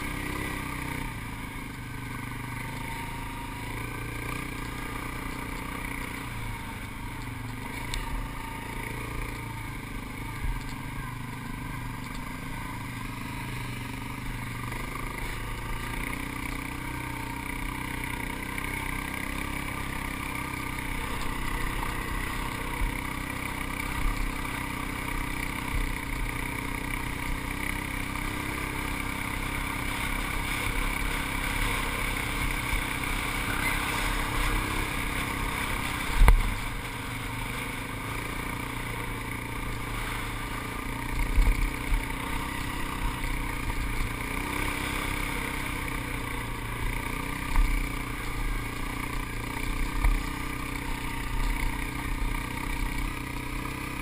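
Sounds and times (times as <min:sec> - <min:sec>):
atv engine running: 0:00.0 - 0:54.0.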